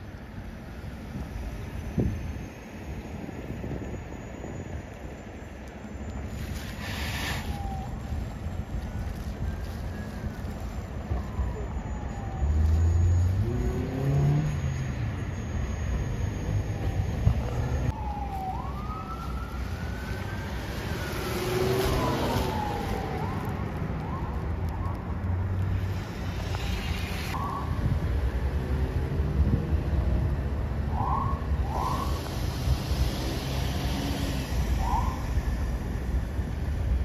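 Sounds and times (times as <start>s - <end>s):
traffic and engine rumble: 0.0s - 37.0s
distant siren wailing: 0.7s - 37.0s.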